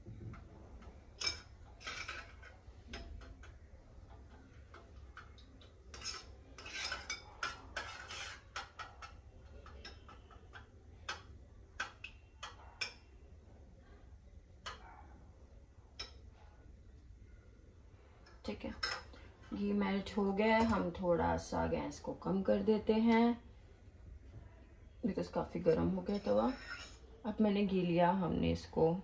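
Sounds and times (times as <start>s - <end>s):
metal spoon scraping steel bowl: 1.2s - 3.5s, 4.7s - 11.2s, 25.8s - 27.2s.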